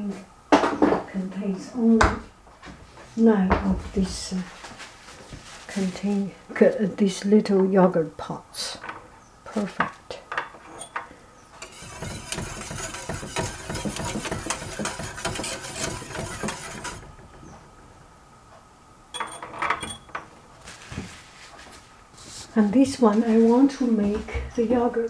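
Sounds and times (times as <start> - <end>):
whisk scraping metal pan: 11.6 - 17.2.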